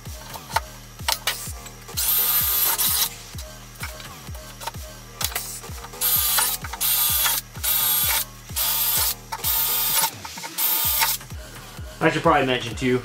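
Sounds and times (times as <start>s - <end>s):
background music with steady beat: 0.0s - 13.0s
cordless drill boring through metal: 2.0s - 3.2s, 5.3s - 11.2s.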